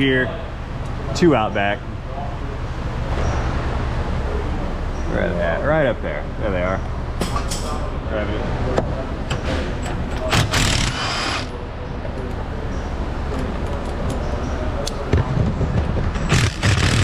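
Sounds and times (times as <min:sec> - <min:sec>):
low shop hum: 0:00.0 - 0:17.0
air ratchet hissing: 0:10.4 - 0:11.5.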